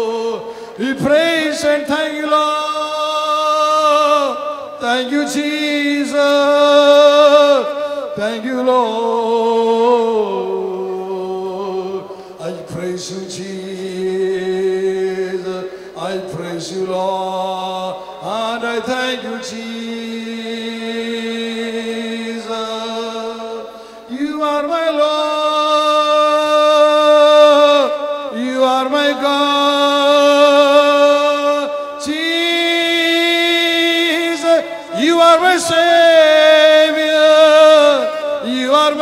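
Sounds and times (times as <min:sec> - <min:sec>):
man singing into microphone: 0:00.0 - 0:39.0.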